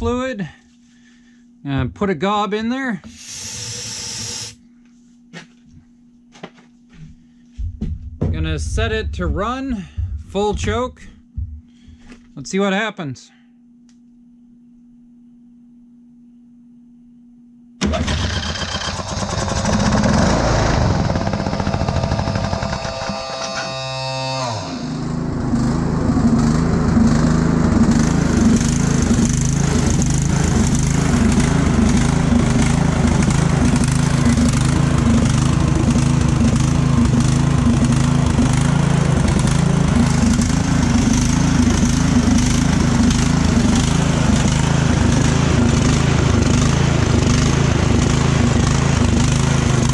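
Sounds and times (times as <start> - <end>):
lawn tractor engine running: 17.8 - 49.9.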